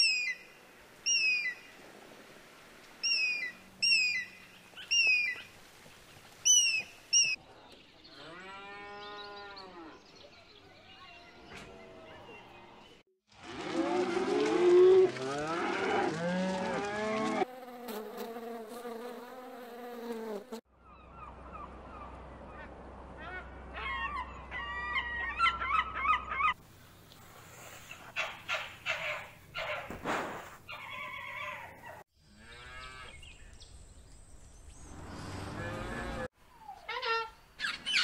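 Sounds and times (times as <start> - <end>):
animal squawks: 27.9 - 30.0
cattle mooing: 35.3 - 36.3.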